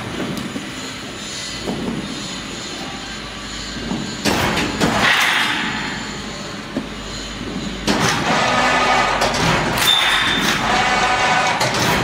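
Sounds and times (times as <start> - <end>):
wire netting machine running: 7.8 - 12.0.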